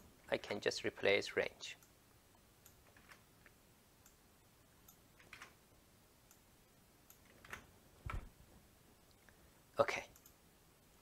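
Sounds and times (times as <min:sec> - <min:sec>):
computer keyboard keystrokes: 0:05.2 - 0:05.5
soft low thump: 0:08.0 - 0:08.4.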